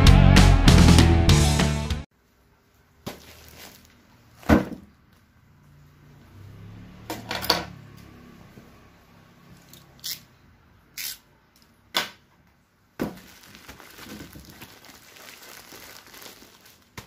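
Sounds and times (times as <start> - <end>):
guitar intro music: 0.0 - 2.1
plastic wrap rustling: 2.7 - 5.3, 13.0 - 17.0.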